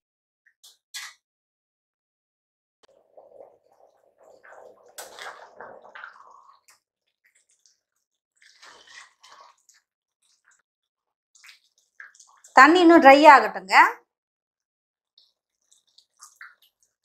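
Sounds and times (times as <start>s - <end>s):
ladle stirring bubbling rice: 2.8s - 10.6s, 11.4s - 12.6s, 15.1s - 17.0s.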